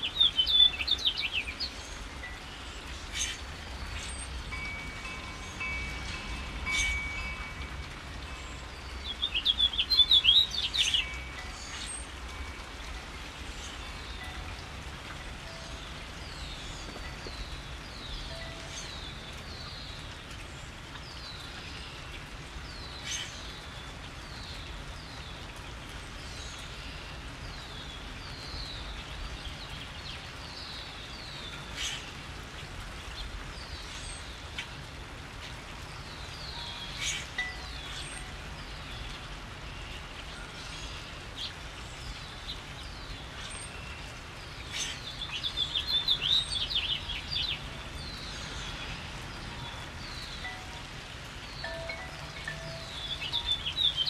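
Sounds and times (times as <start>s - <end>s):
small birds chirping: 0.0s - 25.6s, 35.8s - 54.0s
steady rain falling: 0.0s - 54.0s.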